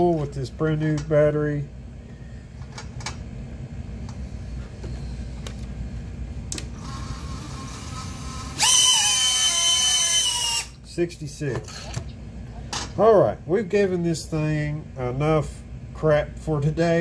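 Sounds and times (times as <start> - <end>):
high-pitched drone motor whine: 6.8 - 10.8.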